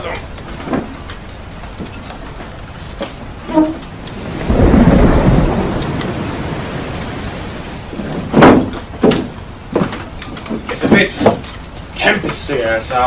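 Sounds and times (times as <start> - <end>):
thunder rumbling: 0.8 - 9.7
heavy rain hissing: 2.6 - 9.7.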